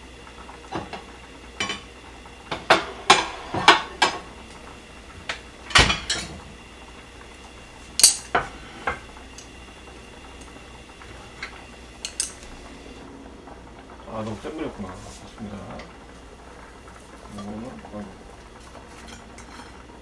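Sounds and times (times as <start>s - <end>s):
dishes and utensils clattering: 5.7s - 6.4s, 8.0s - 9.0s, 12.0s - 12.5s, 19.0s - 19.8s.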